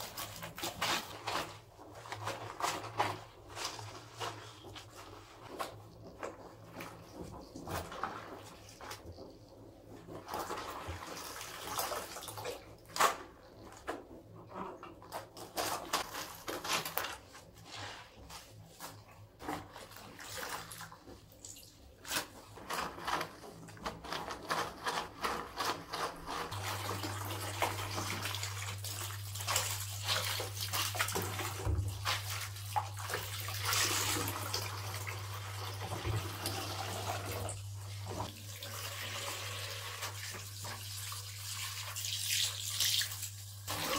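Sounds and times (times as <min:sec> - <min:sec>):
towels splashing and squelching: 0:00.0 - 0:43.9
tap water running into basin: 0:25.8 - 0:43.9.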